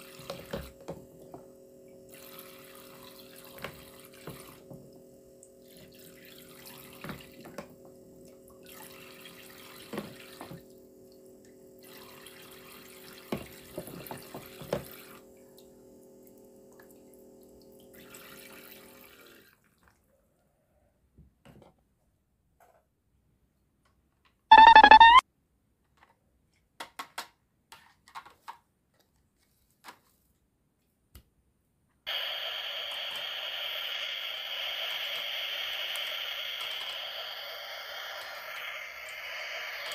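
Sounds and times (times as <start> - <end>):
water running from faucet: 0.0 - 1.0, 2.0 - 7.6, 8.2 - 15.3, 16.3 - 19.5
short loud beep: 24.5 - 25.2
steady hiss: 32.1 - 39.9.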